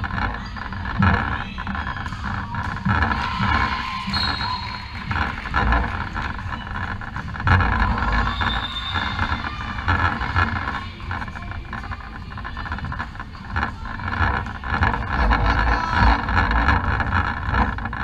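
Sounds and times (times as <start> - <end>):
players' voices: 0.0 - 18.0
shoe squeaks on wooden floor: 3.6 - 5.7, 7.9 - 10.2.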